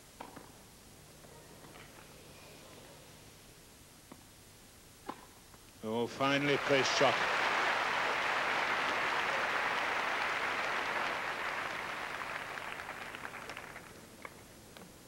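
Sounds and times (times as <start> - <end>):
crowd applauding: 6.2 - 14.0.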